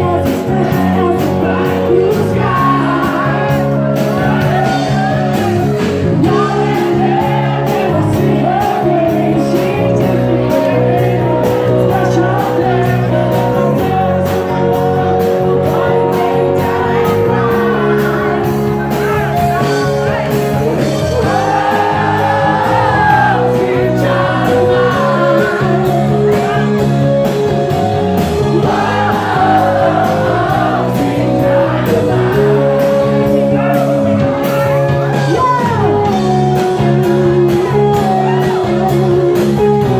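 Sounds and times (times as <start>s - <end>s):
loud music with singing: 0.0s - 39.9s
crowd shouting: 4.1s - 8.7s, 21.0s - 26.7s, 28.5s - 36.0s.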